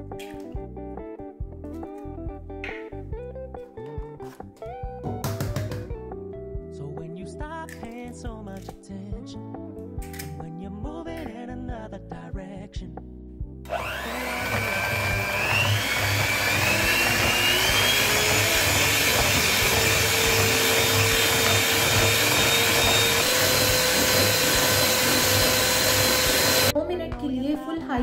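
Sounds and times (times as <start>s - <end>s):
electric hand mixer whirring: 13.7s - 26.7s
beaters whisking in plastic bowl: 14.0s - 26.7s.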